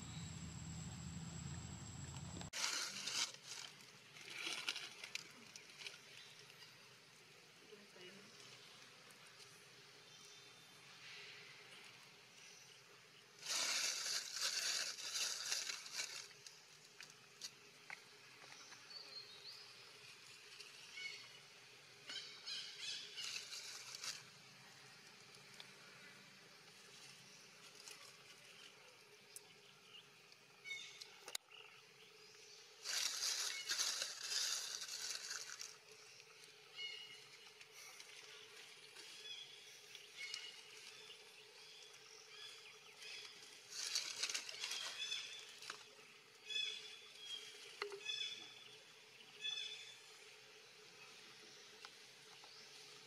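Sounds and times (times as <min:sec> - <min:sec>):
rustling dry leaves: 0:00.0 - 0:06.8, 0:13.3 - 0:17.6, 0:22.8 - 0:25.8, 0:26.7 - 0:28.9, 0:32.7 - 0:48.4.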